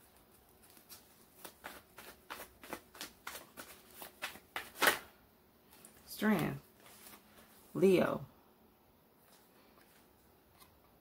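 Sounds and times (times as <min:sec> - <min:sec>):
cards being shuffled: 0:00.0 - 0:05.1.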